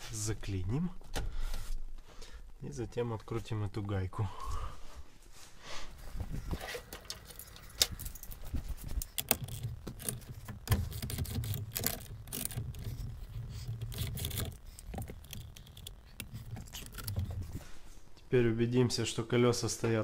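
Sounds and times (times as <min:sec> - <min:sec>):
hand tools clicking and clinking: 0:06.4 - 0:17.6
wrench turning nut: 0:06.6 - 0:17.4.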